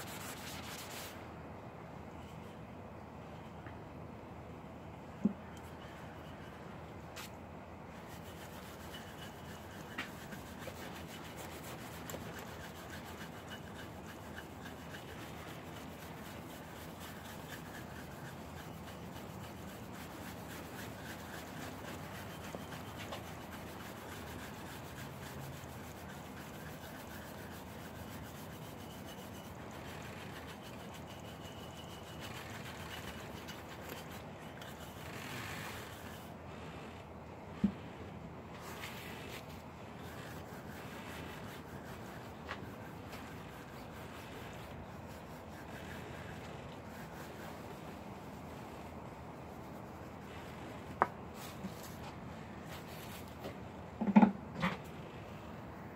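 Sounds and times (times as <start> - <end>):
bristle brush scrubbing concrete: 0.0 - 1.2, 7.2 - 36.4, 38.6 - 50.6.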